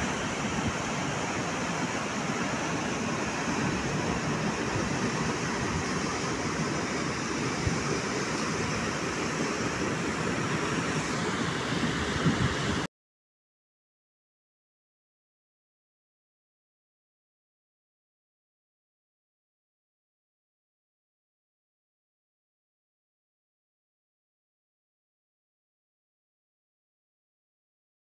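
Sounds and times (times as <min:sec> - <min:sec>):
floodwater rushing: 0:00.0 - 0:12.9
torrential rain: 0:00.0 - 0:12.9.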